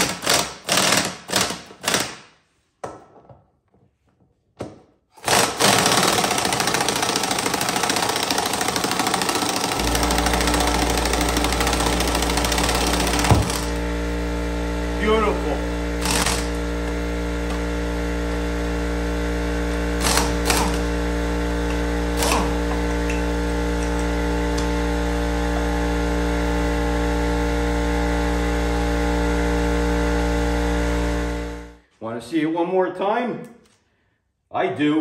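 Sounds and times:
air compressor humming: 0:05.2 - 0:31.8.

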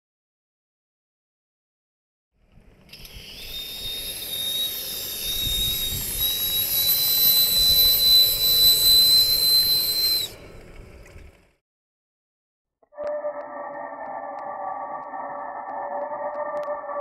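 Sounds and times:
steam hissing: 0:03.1 - 0:10.4
shrill steam whistle blast: 0:03.2 - 0:10.5.

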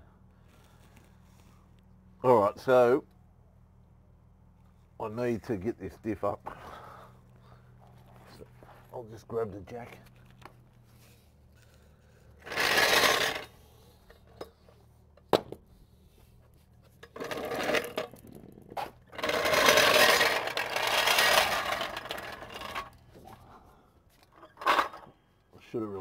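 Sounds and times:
trolley jack rattling on concrete: 0:12.4 - 0:14.6, 0:17.0 - 0:23.3, 0:24.3 - 0:25.1.

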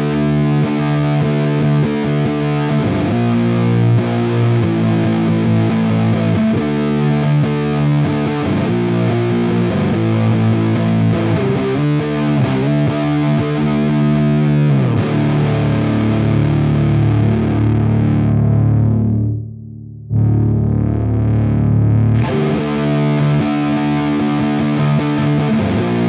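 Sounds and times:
distorted electric guitar: 0:00.0 - 0:26.0.

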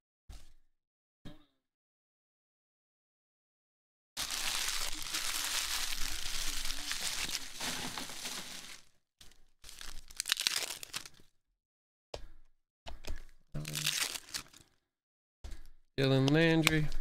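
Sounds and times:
card pack wrappers tearing: 0:04.2 - 0:08.9, 0:09.6 - 0:11.3, 0:13.6 - 0:14.8.

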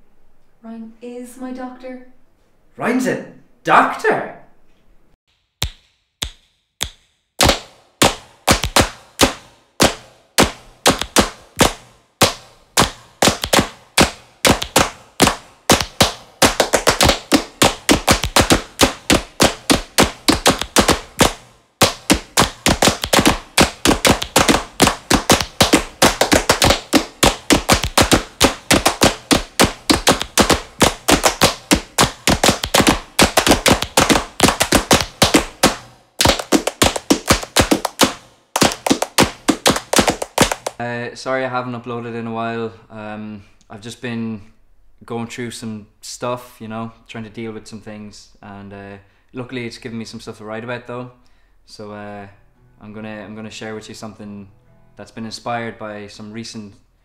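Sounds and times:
sharp percussive hits: 0:05.5 - 0:40.8.

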